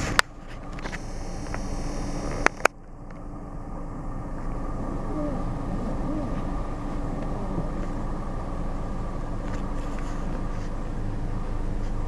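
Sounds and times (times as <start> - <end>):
vehicle rumble from inside cabin: 0.0 - 12.0.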